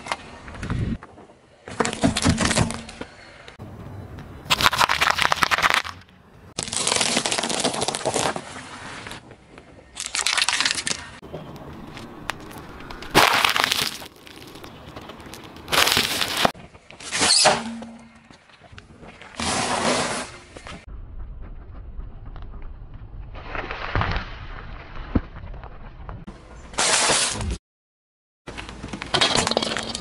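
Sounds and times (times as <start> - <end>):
car tyre crushing objects on asphalt: 10.0 - 17.3.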